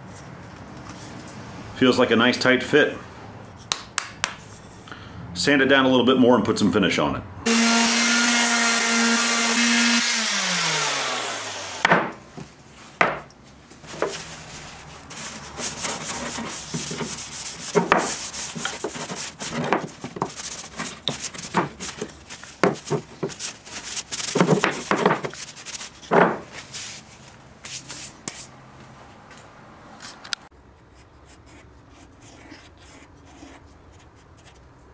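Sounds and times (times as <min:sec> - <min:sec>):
orbital sander spinning down: 0:07.5 - 0:11.9
paper towel rubbing wood: 0:13.9 - 0:28.1
handling knocks: 0:24.2 - 0:25.4, 0:26.1 - 0:26.5.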